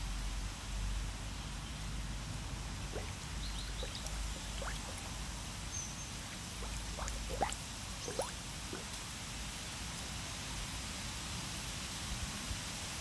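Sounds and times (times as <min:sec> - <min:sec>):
water drops plinking into pond: 0:02.9 - 0:09.0.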